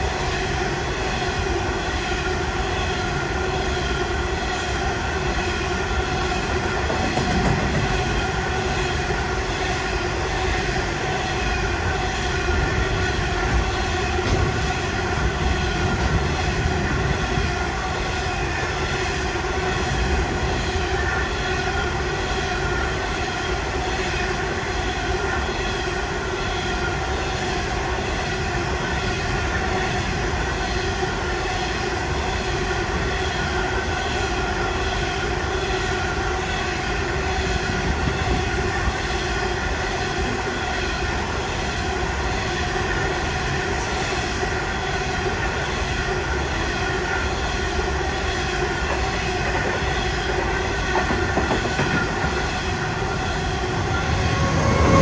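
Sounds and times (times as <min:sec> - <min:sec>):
steady whining tones: 0:00.0 - 0:55.0
train wheels rumbling on rails: 0:00.0 - 0:55.0.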